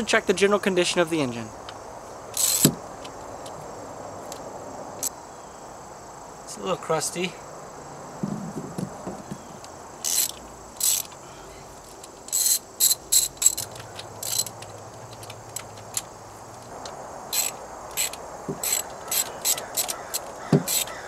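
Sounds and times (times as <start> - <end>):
socket ratchet clicking: 1.7 - 3.6, 10.0 - 11.2, 11.9 - 21.0.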